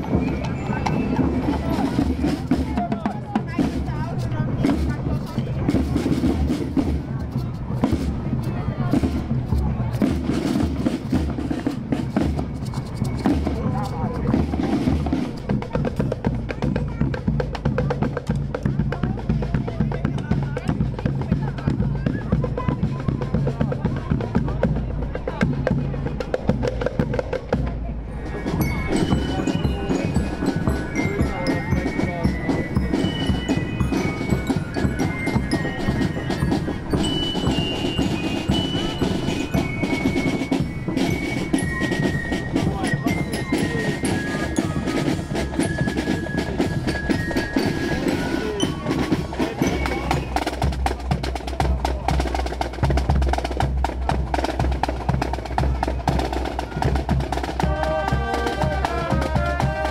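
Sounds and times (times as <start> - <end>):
glockenspiel melody: 0.0 - 2.4, 28.2 - 51.2
snare and tenor drums: 0.0 - 59.9.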